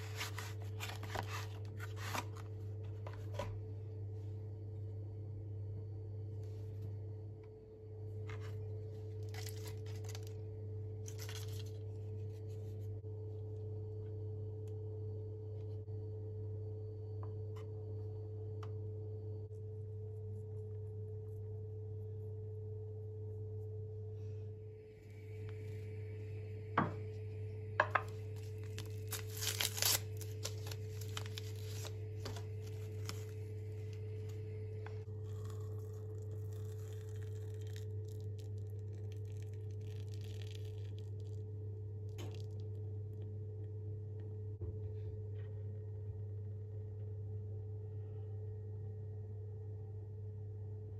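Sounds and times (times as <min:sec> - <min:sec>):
foil wrapper crinkling: 0:00.0 - 0:02.5, 0:09.2 - 0:10.4, 0:11.0 - 0:11.9, 0:28.2 - 0:34.4
paper envelope rustling and tearing: 0:00.0 - 0:03.4, 0:09.2 - 0:10.4, 0:11.0 - 0:11.8, 0:28.3 - 0:34.4
steady low hum: 0:00.0 - 0:50.9.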